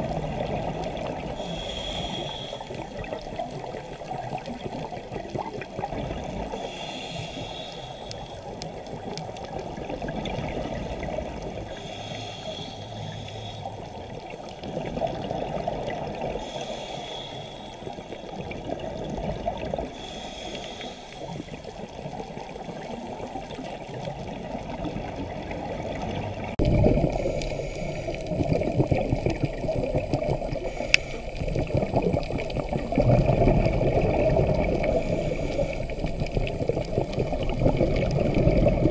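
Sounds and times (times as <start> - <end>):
gurgle of exhaled bubbles: 0.0 - 2.0, 2.7 - 6.9, 8.4 - 12.0, 13.6 - 16.9, 17.7 - 20.1, 21.2 - 38.9
regulator inhalation hiss: 1.4 - 3.0, 6.5 - 8.5, 11.7 - 13.8, 16.4 - 18.3, 19.9 - 21.6, 34.8 - 36.1.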